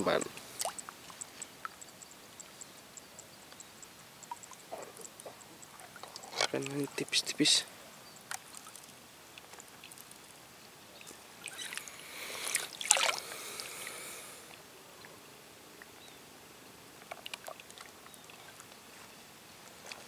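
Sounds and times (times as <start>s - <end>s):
faint ticks: 0.0s - 7.2s, 8.0s - 10.3s, 17.0s - 18.8s
small splash in water: 11.0s - 13.3s.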